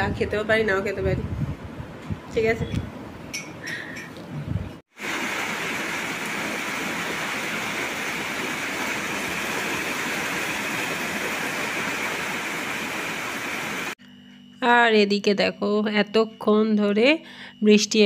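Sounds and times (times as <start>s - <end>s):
steady rain falling: 4.9s - 14.0s.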